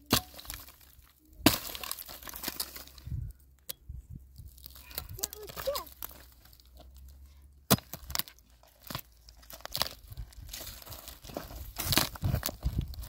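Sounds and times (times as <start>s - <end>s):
hoe striking stony soil: 0.0s - 3.1s, 7.7s - 12.7s
earth and roots tearing: 0.0s - 3.3s, 4.4s - 13.0s.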